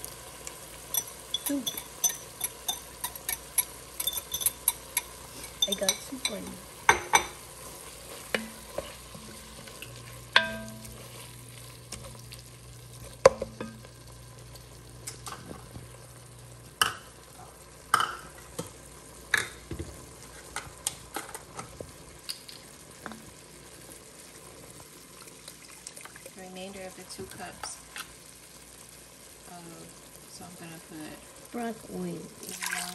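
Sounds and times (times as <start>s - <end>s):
meat sizzling: 0.0s - 32.9s
wooden spoon scraping a pot: 1.4s - 6.5s, 7.6s - 12.3s.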